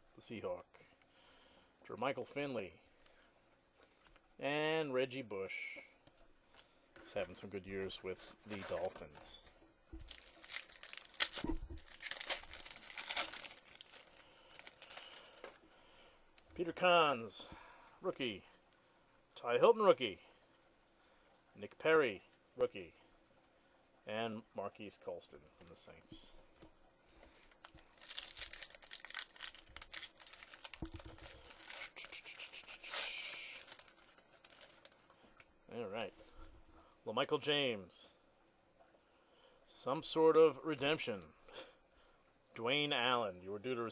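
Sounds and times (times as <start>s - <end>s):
foil wrapper tearing and crinkling: 10.0s - 15.6s, 27.4s - 35.0s.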